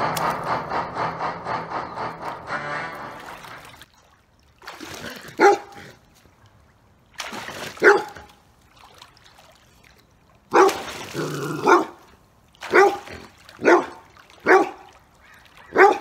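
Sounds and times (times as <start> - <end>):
large dog barking: 5.4 - 5.8, 7.8 - 8.3, 10.5 - 12.0, 12.7 - 14.9, 15.6 - 16.0.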